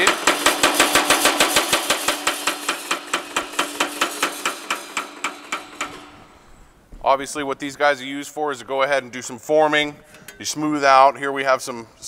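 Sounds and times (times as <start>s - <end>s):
power hammer strokes: 0.0s - 6.5s.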